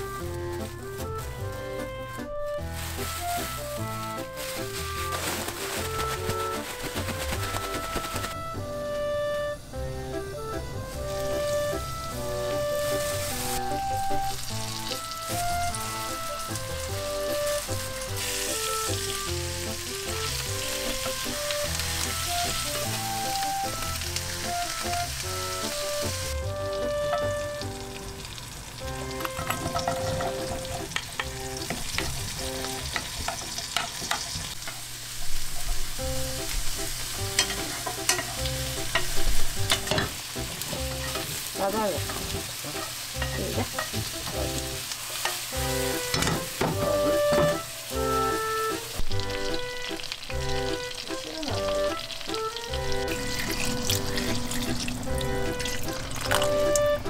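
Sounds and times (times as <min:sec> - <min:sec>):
chicken sizzling in oil: 0:00.0 - 0:57.0
utensils knocking against pan: 0:29.1 - 0:34.8, 0:37.2 - 0:41.4, 0:42.0 - 0:45.5, 0:46.1 - 0:47.6.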